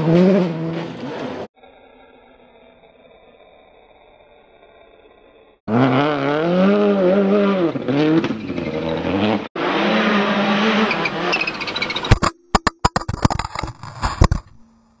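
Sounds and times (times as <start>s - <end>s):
rally car engine revving: 0.0s - 1.5s, 5.7s - 12.1s.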